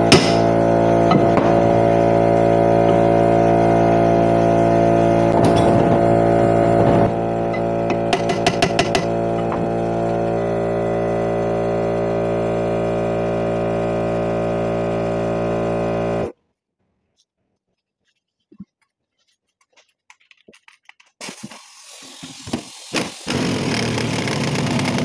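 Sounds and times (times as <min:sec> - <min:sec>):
loud steady hum: 0:00.0 - 0:16.3.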